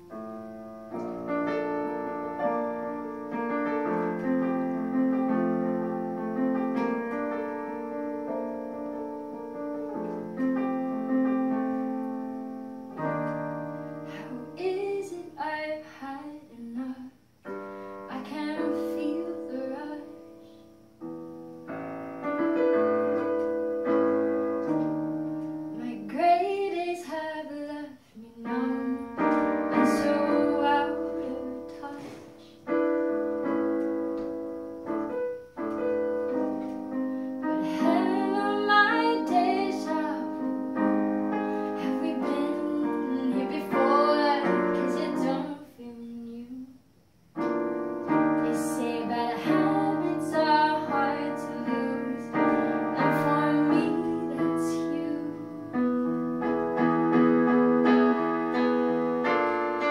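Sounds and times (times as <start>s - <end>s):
electric keyboard chords: 0.0s - 15.3s, 17.4s - 26.9s, 28.4s - 45.6s, 47.3s - 59.9s
woman singing: 14.1s - 20.6s, 25.7s - 32.8s, 37.4s - 41.0s, 41.7s - 46.8s, 48.1s - 56.2s.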